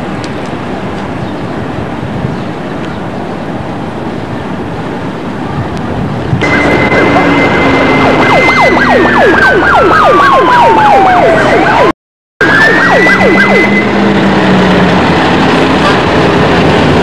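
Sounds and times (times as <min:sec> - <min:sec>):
emergency vehicle siren: 0:06.4 - 0:17.0.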